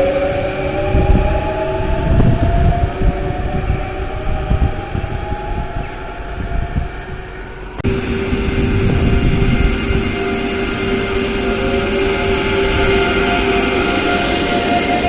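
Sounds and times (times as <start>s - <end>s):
train rumble: 0.0s - 15.0s
electric train motor whining: 7.5s - 15.0s.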